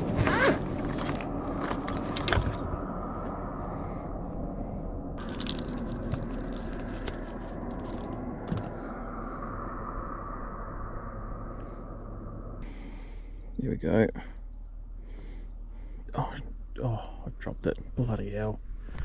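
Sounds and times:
fishing gear clicks and scrapes: 0:05.2 - 0:08.8.

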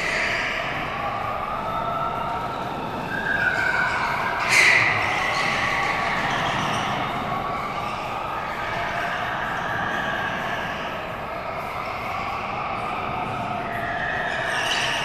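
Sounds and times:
tire squeal: 0:00.0 - 0:15.0.

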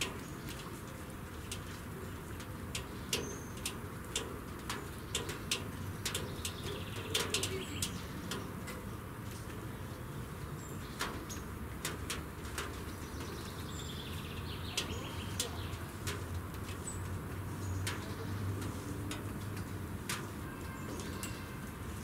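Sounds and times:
birds chirping: 0:01.6 - 0:11.6, 0:12.5 - 0:18.8.

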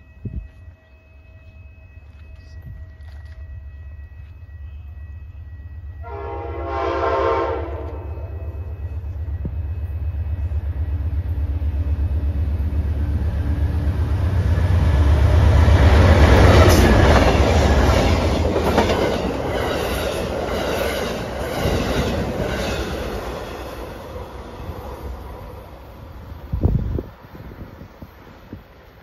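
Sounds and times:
diesel locomotive passing: 0:00.0 - 0:29.0
rhythmic train wheel clacks: 0:08.6 - 0:24.0
wind buffeting microphone: 0:26.0 - 0:28.8.

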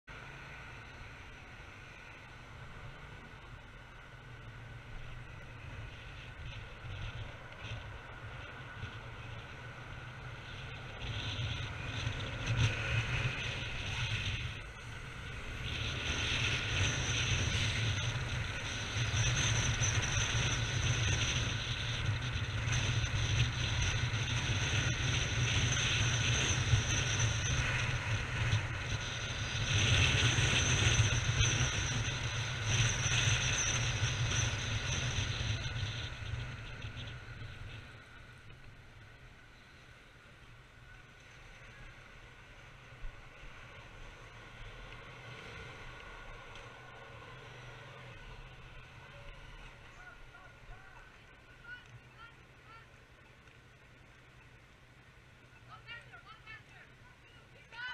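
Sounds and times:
road noise from moving vehicle: 0:00.0 - 0:57.9
wind rumble on microphone: 0:04.4 - 0:39.1.

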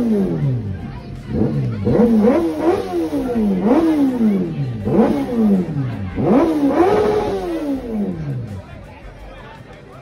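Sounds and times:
motorcycle engine revving: 0:00.0 - 0:08.7.

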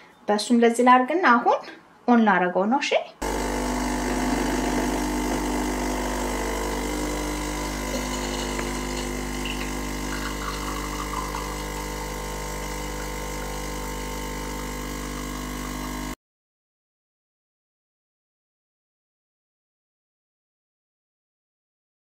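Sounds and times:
espresso machine pump humming: 0:03.2 - 0:16.2.

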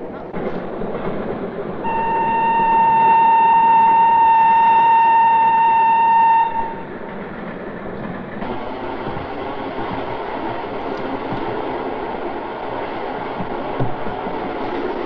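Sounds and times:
moving train rumble: 0:00.0 - 0:15.0
train horn long note: 0:01.8 - 0:06.8.

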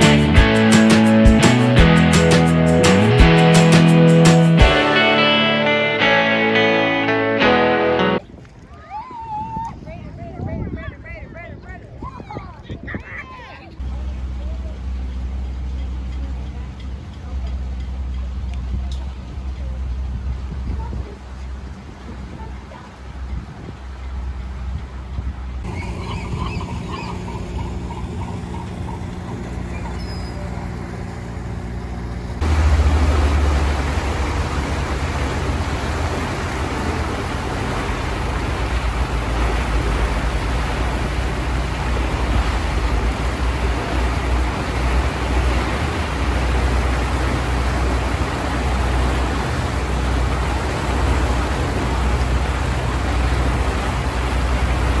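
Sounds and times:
boat motor humming: 0:00.0 - 0:08.2, 0:13.6 - 0:55.0
churning wake rush: 0:00.0 - 0:55.0
wind: 0:00.0 - 0:55.0.

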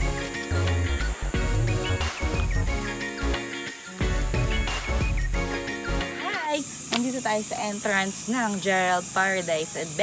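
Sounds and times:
background music with bass line: 0:00.0 - 0:06.3.

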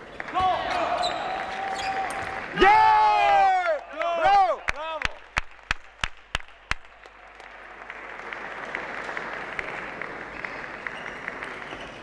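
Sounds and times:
crowd applauding: 0:00.0 - 0:12.0
single claps: 0:04.7 - 0:11.7.

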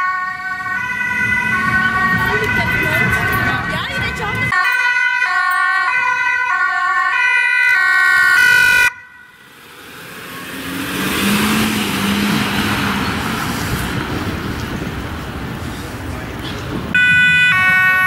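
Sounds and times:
ambulance two-tone siren: 0:00.0 - 0:09.5, 0:16.9 - 0:18.0
ambulance driving past: 0:00.0 - 0:18.0.

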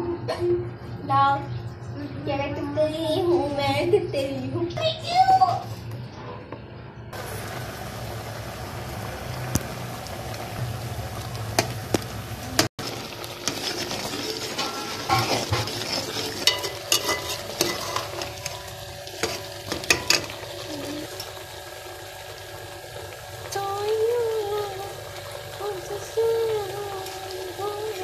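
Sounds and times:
gravy bubbling and sizzling: 0:07.1 - 0:28.0
spoon stirring food in a pot: 0:12.9 - 0:20.3
spoon clinking against pot: 0:16.4 - 0:18.6.

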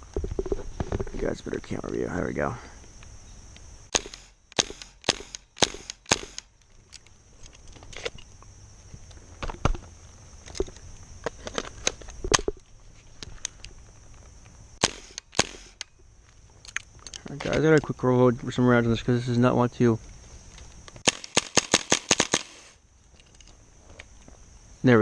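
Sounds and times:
airsoft gun shots: 0:03.9 - 0:06.5, 0:14.8 - 0:15.8, 0:21.0 - 0:22.8.

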